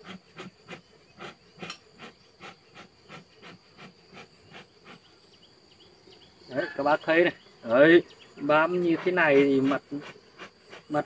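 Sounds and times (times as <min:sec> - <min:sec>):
bellows hissing puffs: 0:00.0 - 0:05.2, 0:08.5 - 0:11.0.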